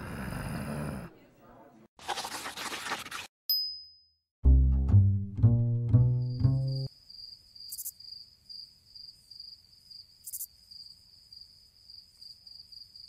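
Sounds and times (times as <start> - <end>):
plucked bass music: 4.4 - 6.9
crickets chirping: 6.9 - 13.0.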